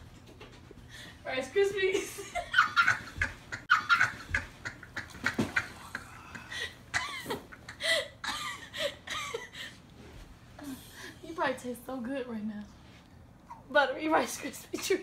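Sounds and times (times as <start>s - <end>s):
woman laughing: 1.8s - 9.8s.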